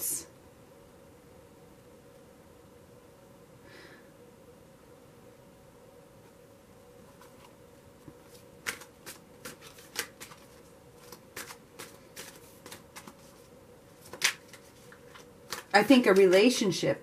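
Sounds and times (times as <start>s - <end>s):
cards being shuffled: 7.1s - 16.5s
card snap: 8.6s - 10.4s.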